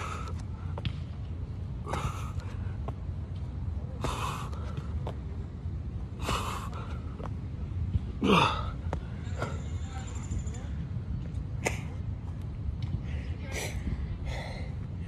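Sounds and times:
steady low rumble: 0:00.0 - 0:15.0
man gasping breaths: 0:01.8 - 0:02.7, 0:14.2 - 0:14.8.

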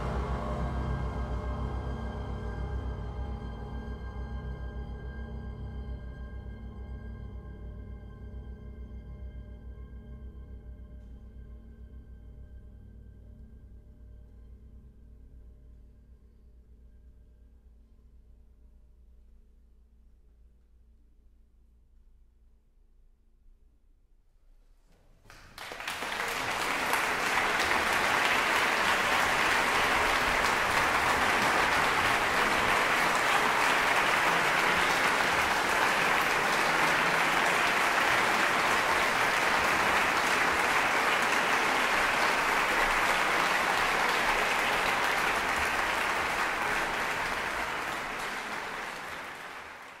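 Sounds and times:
audience applauding: 0:25.3 - 0:50.0.

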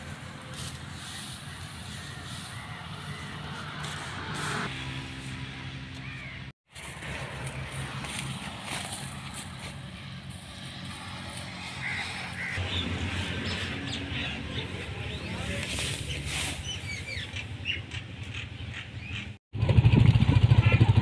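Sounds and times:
birds chirping: 0:00.9 - 0:04.7, 0:05.5 - 0:06.5, 0:10.7 - 0:19.4.

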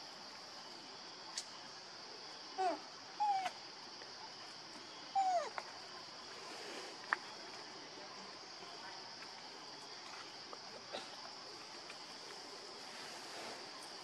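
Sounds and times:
infant monkey whimpering cries: 0:02.6 - 0:03.6, 0:05.1 - 0:05.5.

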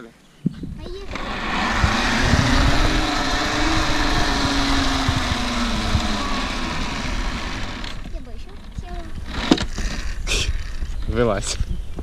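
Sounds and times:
low rumble: 0:00.6 - 0:11.0
pulley trolley whirring on cable: 0:00.9 - 0:10.9.

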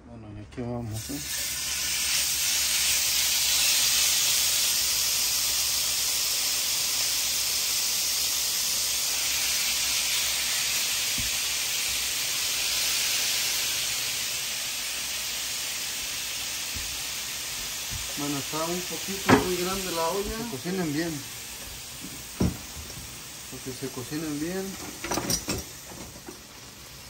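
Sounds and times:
beef sizzling in a skillet: 0:00.9 - 0:27.0
faint knock in pan: 0:22.0 - 0:22.8.

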